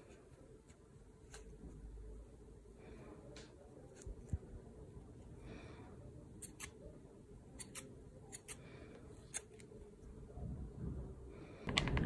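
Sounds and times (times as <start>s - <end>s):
scissors snipping yarn: 6.4s - 6.8s, 7.6s - 8.6s.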